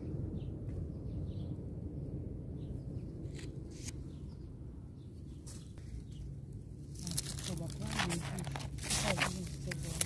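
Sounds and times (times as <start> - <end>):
low steady rumble: 0.0 - 10.0.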